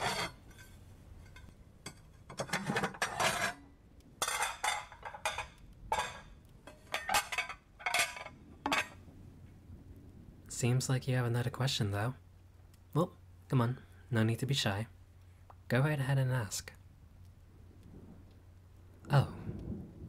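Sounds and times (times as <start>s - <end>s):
tableware clinking: 4.2s - 9.0s.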